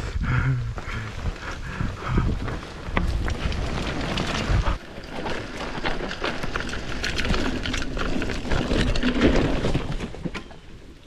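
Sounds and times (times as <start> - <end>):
bike rattling and knocking: 0.4 - 10.7.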